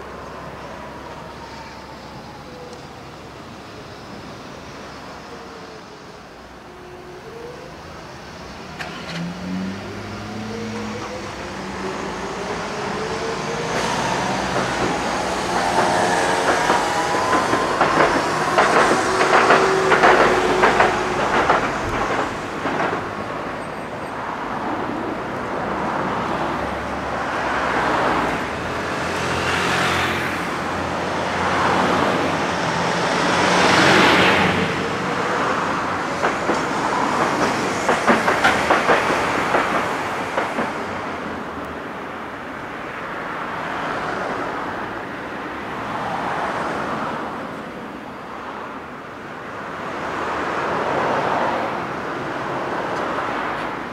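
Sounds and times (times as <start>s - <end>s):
road traffic: 0.0s - 53.9s
tram motor whine: 0.2s - 30.7s
tram wheels clattering on rails: 7.2s - 45.0s.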